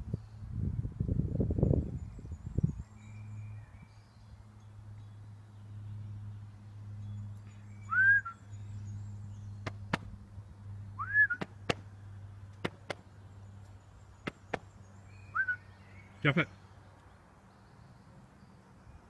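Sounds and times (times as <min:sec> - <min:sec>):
rising whistle-like tones: 0:07.8 - 0:08.4, 0:11.0 - 0:11.5, 0:15.3 - 0:15.7
sharp clicks: 0:12.5 - 0:14.7.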